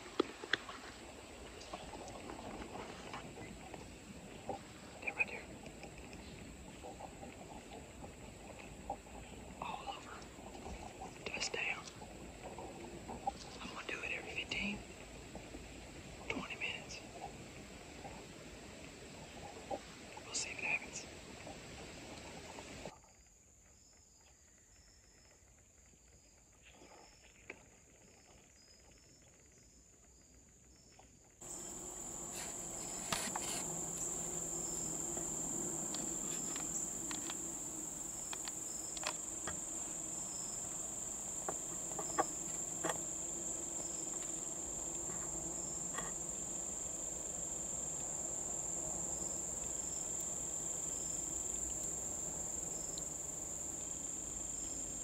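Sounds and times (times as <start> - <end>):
insects trilling: 0.2 - 22.9, 28.1 - 55.0
scattered clicks: 35.9 - 37.5, 38.2 - 39.6.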